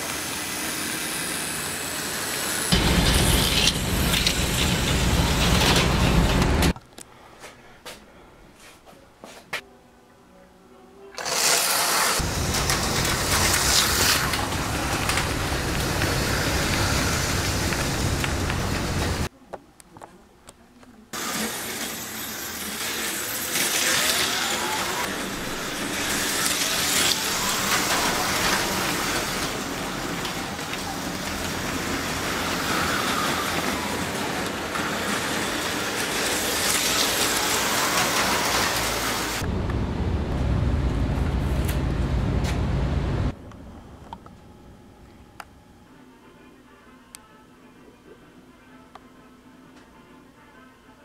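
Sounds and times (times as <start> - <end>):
slot car motor whines: 0.0 - 6.6, 11.2 - 19.2, 21.2 - 39.4
slot car wheels hissing: 0.0 - 6.8, 11.2 - 19.3, 21.2 - 39.4
low rumble: 39.4 - 45.4.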